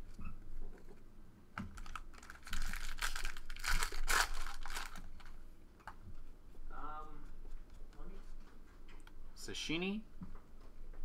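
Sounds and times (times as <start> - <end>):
foil wrapper crinkling: 1.7 - 5.4.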